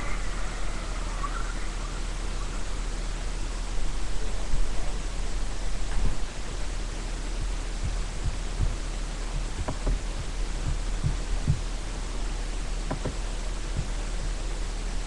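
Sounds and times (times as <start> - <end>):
microphone hiss and hum: 0.0 - 15.0
soft low thumps: 3.6 - 15.0.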